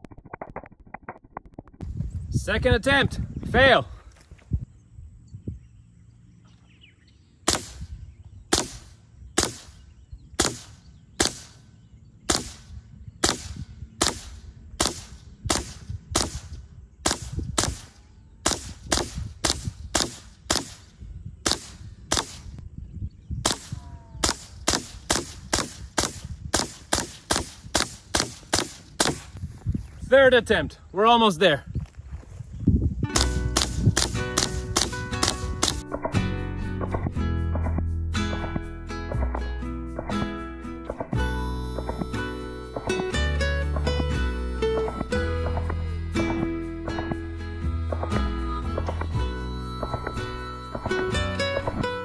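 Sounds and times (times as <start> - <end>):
air rifle shots: 7.4 - 11.7, 12.3 - 22.6, 23.4 - 29.4, 33.2 - 36.2.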